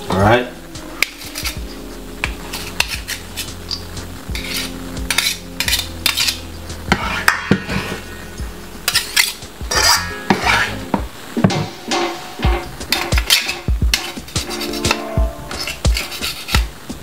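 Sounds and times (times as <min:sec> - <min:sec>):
kitchen utensils clattering: 0:04.4 - 0:16.7.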